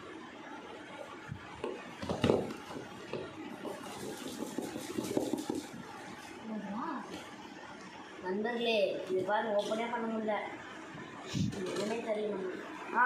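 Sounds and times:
knock on cardboard box: 1.6 - 2.9
scraping on cardboard: 3.6 - 5.8.

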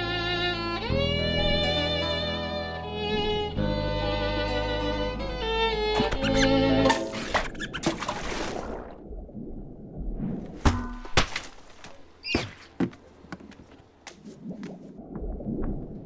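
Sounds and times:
squeaky chirp: 6.0 - 7.9, 12.2 - 12.5.

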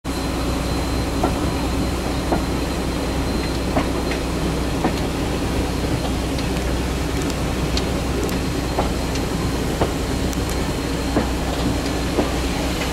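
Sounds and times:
train running rumble: 0.1 - 12.9.

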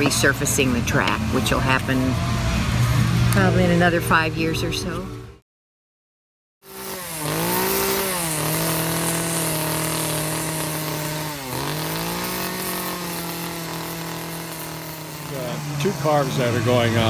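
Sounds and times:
chainsaw carving wood: 6.6 - 17.0.

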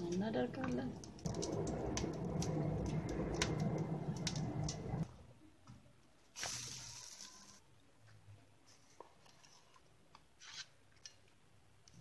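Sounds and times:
low steady hum: 0.0 - 5.4
sizzle in buttered pan: 6.4 - 7.6.

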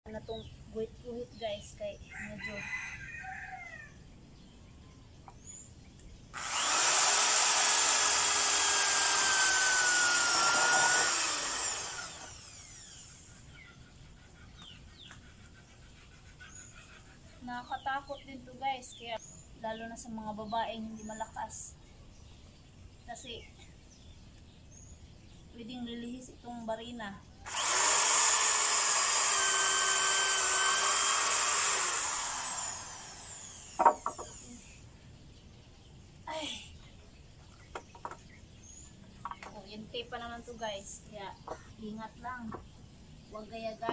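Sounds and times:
electric drill boring into wood: 6.4 - 13.4, 27.5 - 34.8.

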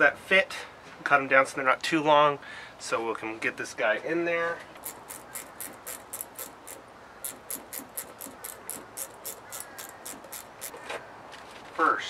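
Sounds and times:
ratchet wrench clicking: 4.8 - 10.8.

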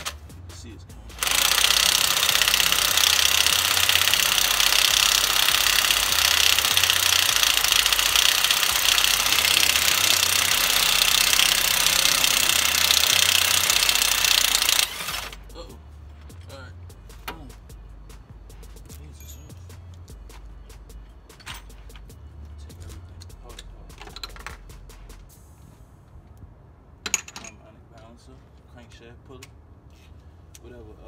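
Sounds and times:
electric impact wrench hammering: 0.0 - 22.3.

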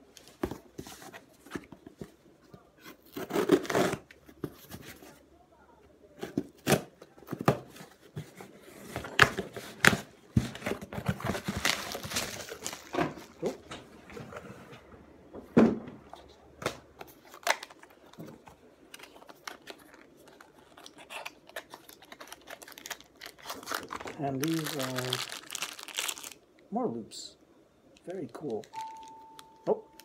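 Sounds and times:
packaging tearing and crinkling: 3.0 - 4.0, 10.6 - 13.5, 17.0 - 26.4.

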